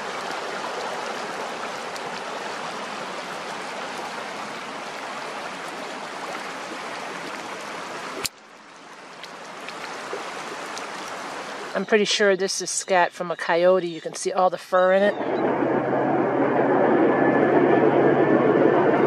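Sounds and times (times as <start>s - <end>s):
river water rushing: 0.0s - 11.8s.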